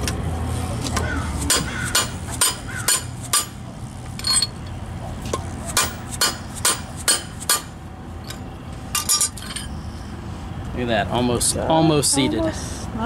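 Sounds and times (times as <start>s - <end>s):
mallet clanking on steel: 1.5s - 3.6s, 5.7s - 7.7s.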